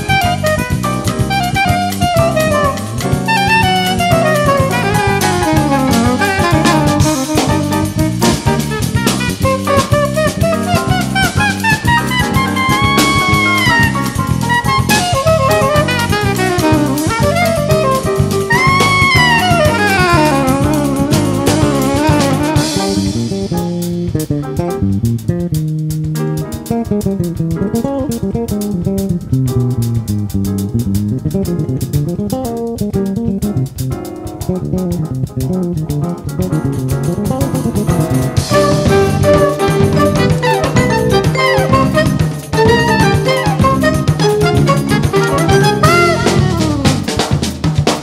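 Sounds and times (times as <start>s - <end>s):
instrumental jazz fusion: 0.0s - 48.0s
sliding lead instrument: 0.0s - 48.0s.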